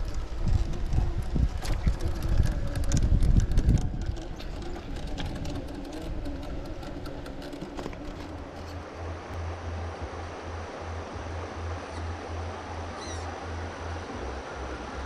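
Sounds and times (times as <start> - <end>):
stones clicking under tyres: 0.0 - 9.0
wind buffeting microphone: 0.0 - 9.4
faint wavering motor hum: 0.0 - 15.0.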